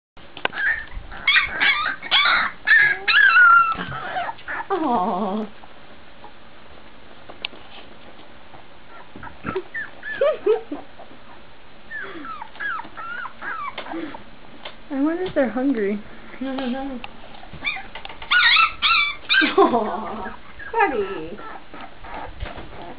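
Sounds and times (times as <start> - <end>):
puppies whimpering and yipping: 0.5 - 5.5, 8.8 - 14.3, 17.4 - 22.9.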